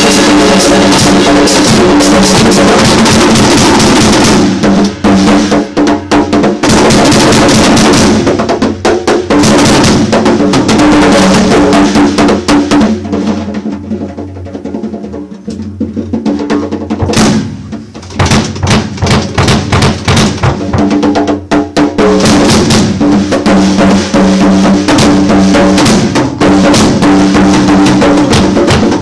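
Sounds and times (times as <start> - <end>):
cymbal crashes: 0.0 - 5.7
hands striking snare drum: 0.0 - 13.4, 15.4 - 29.0
drum kit played fast: 0.0 - 29.0.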